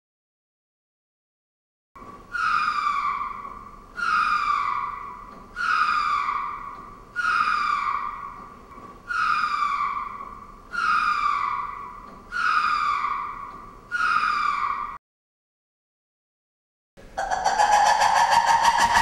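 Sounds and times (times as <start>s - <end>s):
lemur calling: 2.3s - 15.0s, 17.2s - 19.0s.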